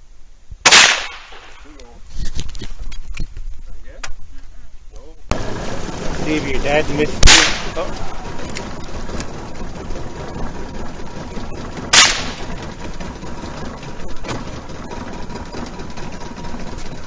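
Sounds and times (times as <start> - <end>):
steady low rumble: 0.0 - 17.0
shotgun shot: 0.6 - 1.6, 7.2 - 7.8, 11.9 - 12.5.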